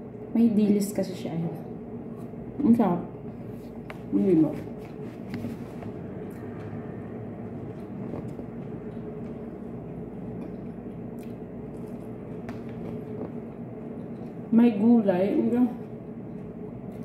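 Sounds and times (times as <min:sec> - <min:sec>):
steady low hum: 0:00.0 - 0:17.0
person chewing: 0:04.9 - 0:07.0, 0:07.6 - 0:14.5, 0:15.8 - 0:17.0.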